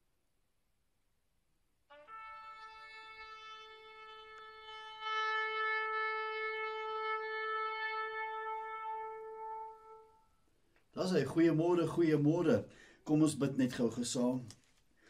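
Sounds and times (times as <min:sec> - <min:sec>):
long steady horn note: 0:01.9 - 0:10.5.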